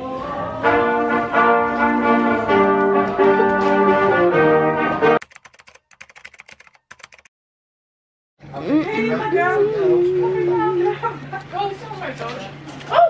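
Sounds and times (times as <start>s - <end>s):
brass band music: 0.6s - 5.2s.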